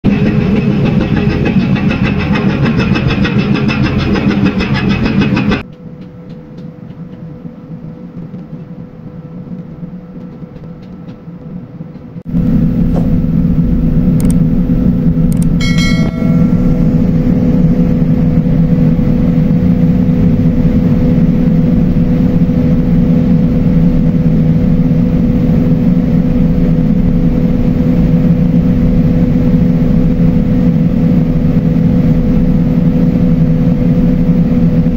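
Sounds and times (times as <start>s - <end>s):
diesel engine drone: 0.0s - 5.7s, 12.2s - 34.9s
short chime: 15.6s - 17.4s.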